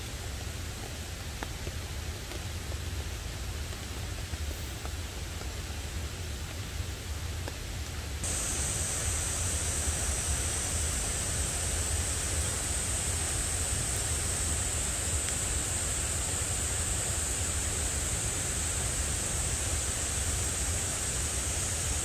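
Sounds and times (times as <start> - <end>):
heavy rain falling: 8.2 - 22.0.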